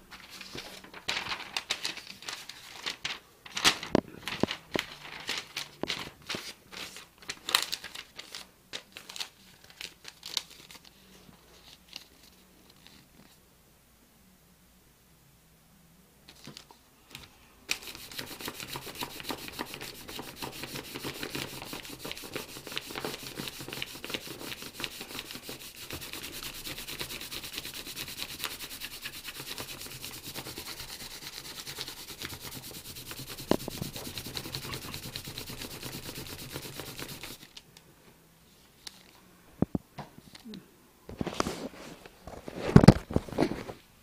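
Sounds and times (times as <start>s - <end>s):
paper rubbing on denim: 17.8s - 37.4s.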